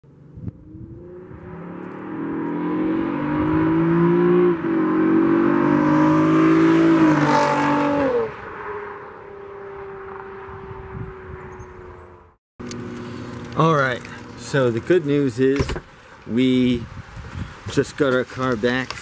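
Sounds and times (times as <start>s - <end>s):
car engine accelerating: 0.2s - 14.5s.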